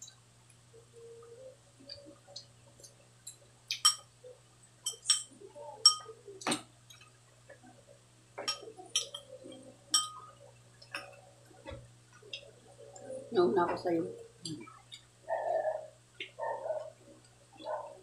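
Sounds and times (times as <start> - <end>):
spoons clinking against glass bowls: 3.3 - 4.1, 4.8 - 6.2, 8.4 - 10.3.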